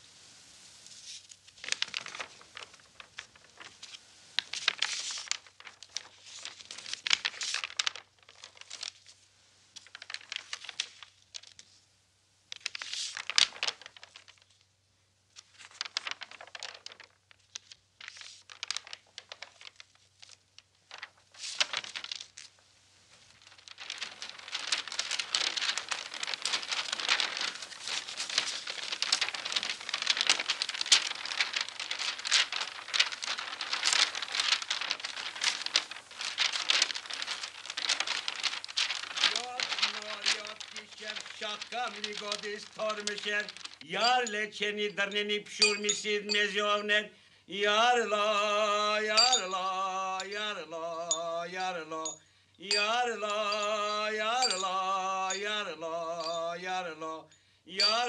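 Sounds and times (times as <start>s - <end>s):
book pages rustling and flipping: 0.9s - 11.8s, 12.5s - 14.7s, 15.3s - 44.5s, 52.7s - 55.6s, 57.8s - 58.0s.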